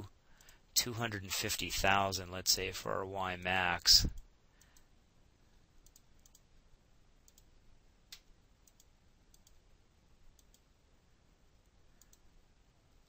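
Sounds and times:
faint keyboard clicks: 5.8 - 6.5, 7.2 - 7.5, 10.3 - 10.7, 12.0 - 12.3.

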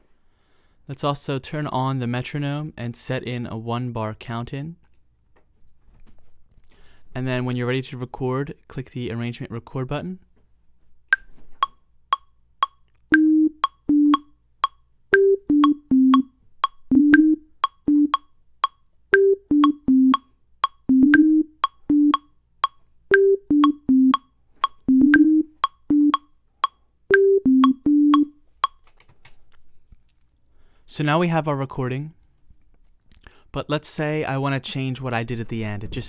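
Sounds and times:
metronome clicking: 11.1 - 28.8
synth melody notes: 13.1 - 14.3, 15.1 - 18.2, 19.1 - 22.3, 23.1 - 26.3, 27.1 - 28.4.

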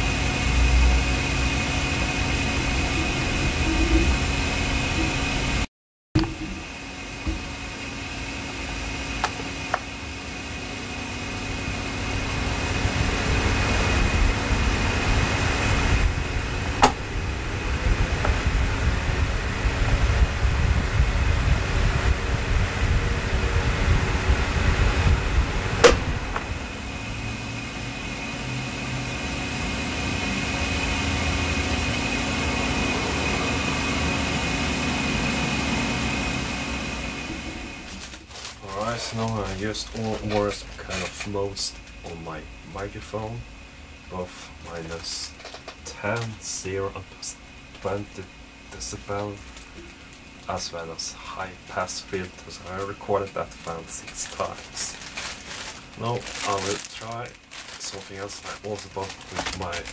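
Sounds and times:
fan air whoosh: 0.0 - 59.9
fan hum and high whine: 0.0 - 59.9
wind rumble on microphone: 11.6 - 27.0.

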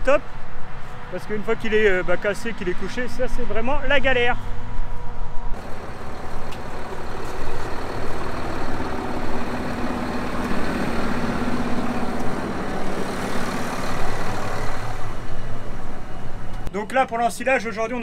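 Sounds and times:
tractor diesel engine running: 5.6 - 16.7.

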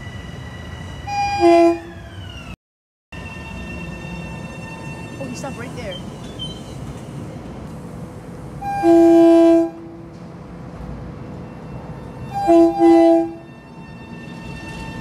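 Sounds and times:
train horn blasts: 1.1 - 1.9, 8.6 - 10.0, 12.3 - 14.0
train rumbling: 3.2 - 15.0.

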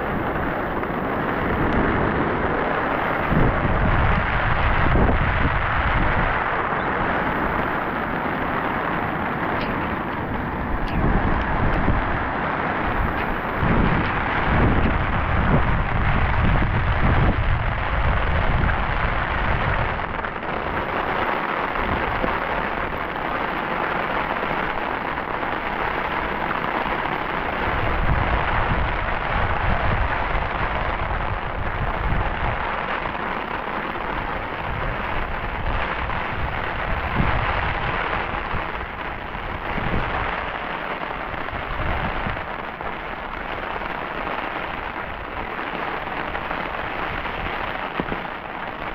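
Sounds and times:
low rumbling: 0.0 - 20.8
heavy rain falling: 0.0 - 48.9.

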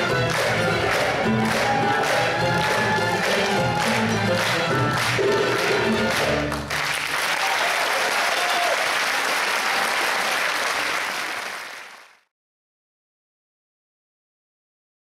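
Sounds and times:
audience applauding: 0.0 - 12.3
faint cheer: 0.4 - 5.9, 7.2 - 11.0.

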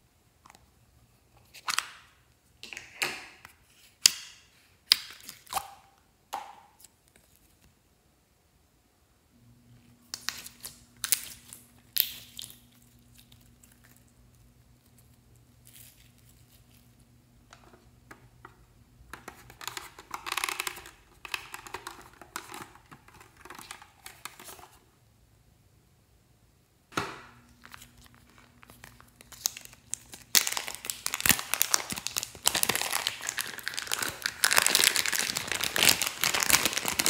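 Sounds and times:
plastic packaging crinkling: 10.1 - 14.1, 19.3 - 24.8, 27.4 - 37.0.

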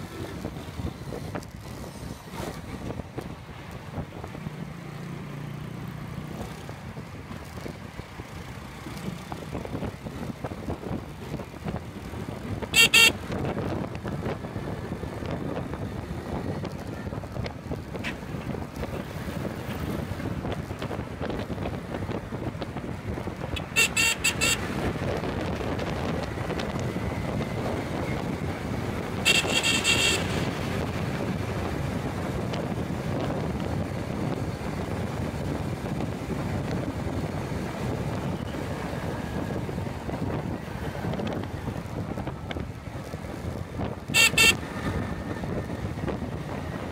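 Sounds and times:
road traffic rumble: 0.0 - 46.9
vehicle horns honking: 12.7 - 13.3, 23.6 - 24.8, 29.2 - 30.7, 44.1 - 44.6
wind buffeting: 24.6 - 46.9.

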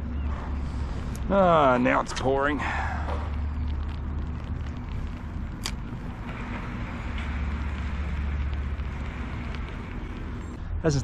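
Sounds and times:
heavy rain pouring: 1.3 - 10.6.

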